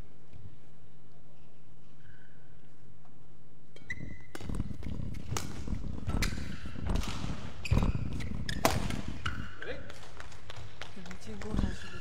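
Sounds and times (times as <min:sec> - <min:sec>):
racket hitting shuttlecock: 0:03.8 - 0:10.3
footsteps on court: 0:03.8 - 0:12.0.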